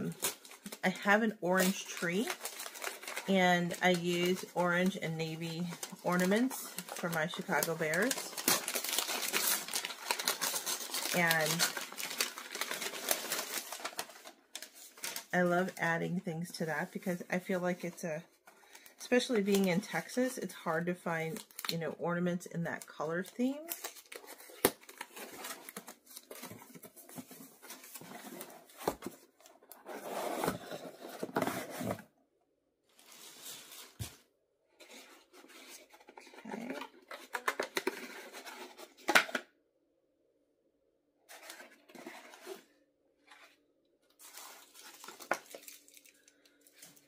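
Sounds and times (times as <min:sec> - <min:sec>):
gift wrap rustling and tearing: 0:00.0 - 0:15.4, 0:23.3 - 0:32.0, 0:32.9 - 0:39.4, 0:41.3 - 0:47.0
sharp paper crackle: 0:00.0 - 0:15.4, 0:44.2 - 0:47.0.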